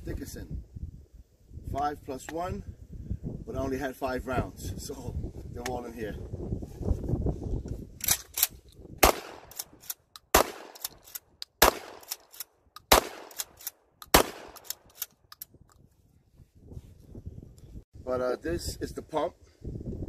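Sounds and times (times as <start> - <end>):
shotgun shots: 9.0 - 9.7, 10.3 - 11.0, 11.6 - 12.3, 12.9 - 14.9
shotgun pump racking clacks: 13.3 - 15.8.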